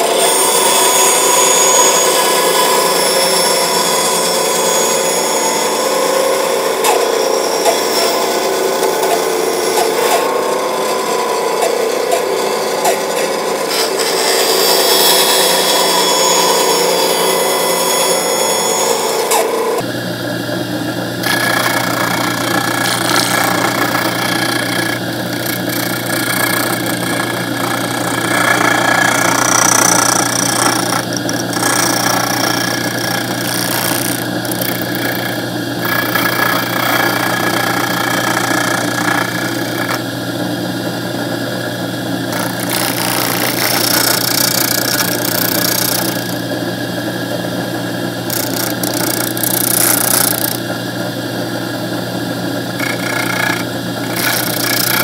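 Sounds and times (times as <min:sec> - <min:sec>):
disc sander motor hum: 0:19.3 - 0:55.0
wood scratching against sanding disc: 0:21.2 - 0:40.0, 0:42.3 - 0:46.5, 0:48.3 - 0:50.6, 0:52.7 - 0:55.0.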